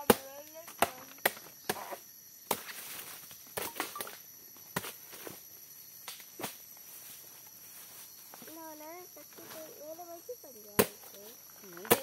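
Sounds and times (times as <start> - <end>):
dry palm stems chopped and breaking: 0.0 - 1.9, 10.8 - 11.0, 11.8 - 12.0.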